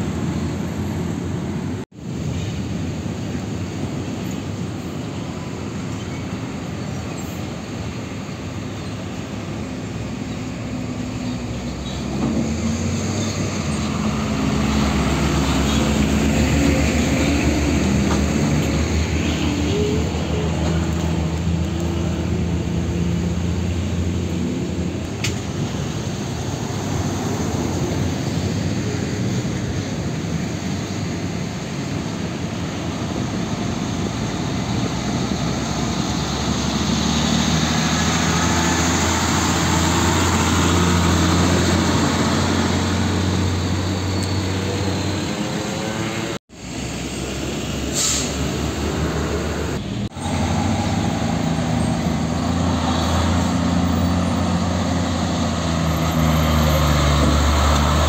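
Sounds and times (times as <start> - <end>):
diesel trucks passing slowly: 0.0 - 58.0
brief hiss: 47.9 - 48.5.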